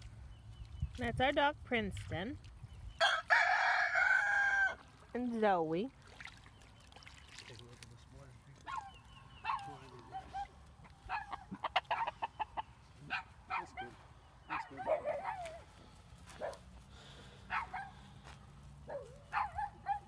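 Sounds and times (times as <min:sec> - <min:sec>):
chickens clucking: 0:09.5 - 0:12.8.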